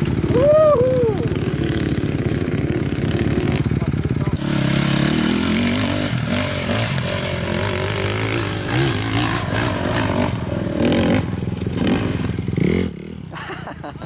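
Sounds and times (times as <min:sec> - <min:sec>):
dirt bike engine revving: 0:00.0 - 0:13.7.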